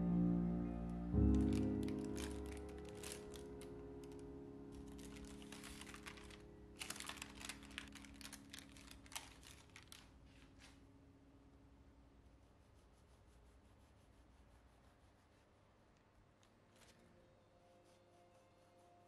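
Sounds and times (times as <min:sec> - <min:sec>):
held piano chord: 0:00.0 - 0:09.7
baking paper crinkling: 0:01.2 - 0:10.8.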